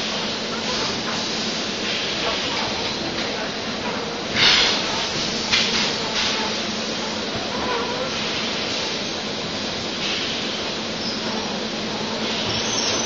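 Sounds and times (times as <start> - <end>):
machine and conveyor din: 0.0 - 13.0
compressed air hisses: 4.3 - 7.0.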